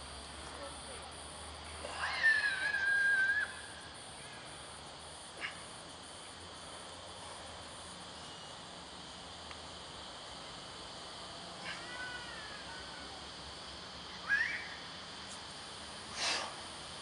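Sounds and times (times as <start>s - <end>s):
high insect drone: 0.0s - 17.0s
whistled call: 2.1s - 3.7s, 14.2s - 14.8s.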